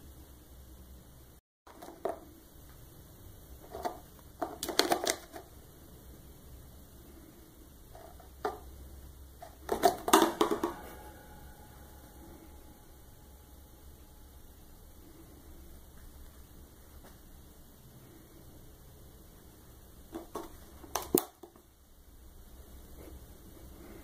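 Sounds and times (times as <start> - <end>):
plastic tub clattering on floor: 9.4 - 10.9.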